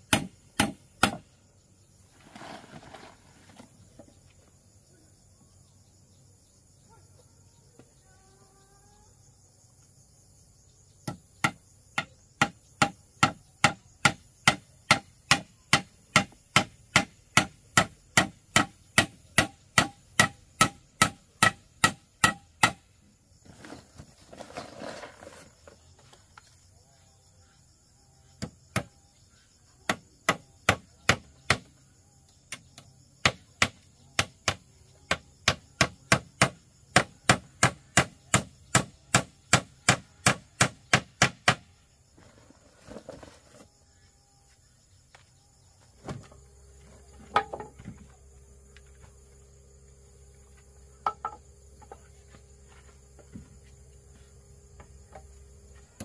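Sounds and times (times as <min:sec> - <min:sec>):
hand tool striking wood: 0:00.1 - 0:01.2, 0:11.0 - 0:25.2, 0:29.9 - 0:31.7, 0:33.2 - 0:41.7, 0:47.0 - 0:48.1, 0:51.0 - 0:53.7
scraping rustle: 0:02.1 - 0:04.2, 0:23.4 - 0:26.5, 0:42.1 - 0:43.7.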